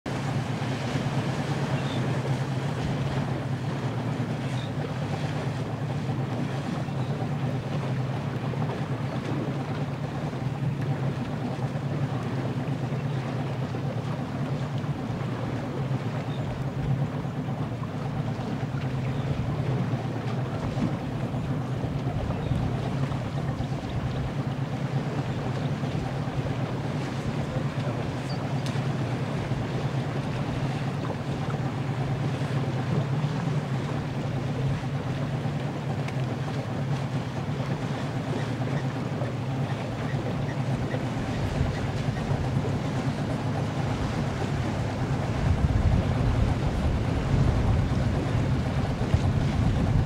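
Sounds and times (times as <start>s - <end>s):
boat motor humming: 0.0s - 50.0s
water noise: 0.0s - 50.0s
wind on microphone: 43.8s - 50.0s.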